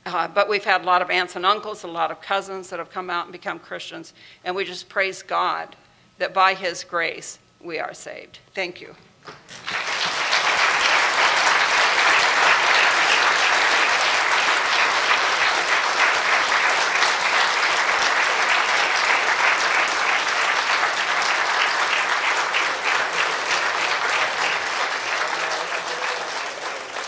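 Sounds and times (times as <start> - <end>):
audience applauding: 9.5 - 27.0.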